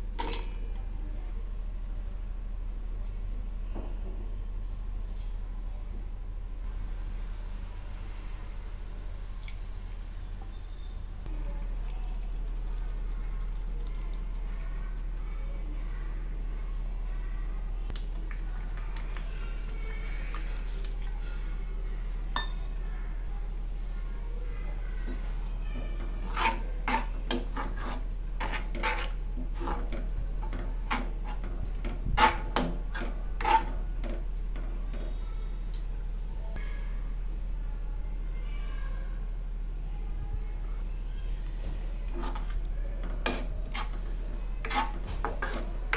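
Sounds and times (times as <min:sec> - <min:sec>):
sauce simmering with crackling: 0:11.3 - 0:15.3
spoon scraping a pan: 0:25.1 - 0:34.2, 0:42.1 - 0:45.9.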